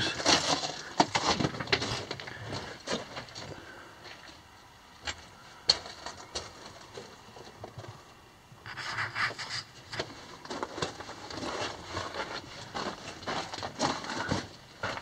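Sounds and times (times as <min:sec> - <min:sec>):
footsteps crunching on rocky floor: 0:00.0 - 0:04.3, 0:10.0 - 0:15.0.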